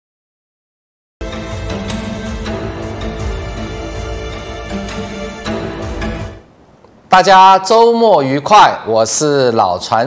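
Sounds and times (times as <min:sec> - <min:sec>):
instrumental music with sharp hits: 0:01.2 - 0:06.5.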